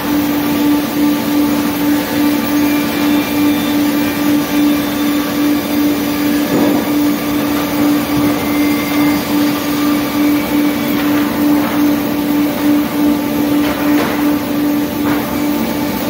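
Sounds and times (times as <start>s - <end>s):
chain conveyor running: 0.0s - 16.0s
sawmill machine hum: 0.0s - 16.0s
circular saws sawing log: 1.7s - 13.6s.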